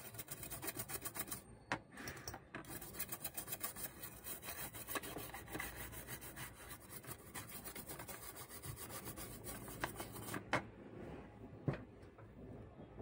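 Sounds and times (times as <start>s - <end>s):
brush scrubbing circuit board: 0.0s - 1.5s, 2.6s - 10.5s.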